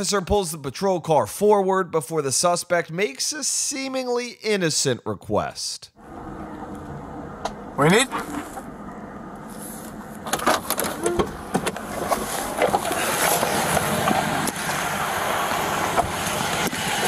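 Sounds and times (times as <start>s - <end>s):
car door opening clicks and knocks: 10.2s - 12.0s.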